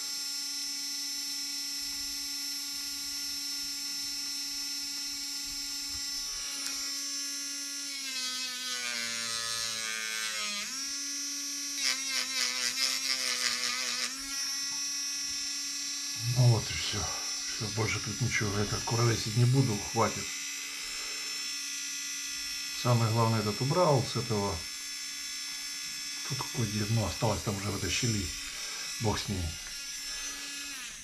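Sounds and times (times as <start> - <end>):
rotary tool whining: 2.7 - 31.0
rotary tool grinding plastic: 5.3 - 21.4, 25.8 - 31.0.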